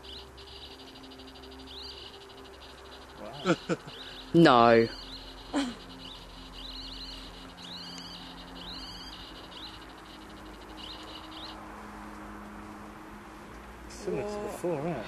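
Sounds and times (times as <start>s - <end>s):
meter chirping crackle: 0.0s - 11.6s.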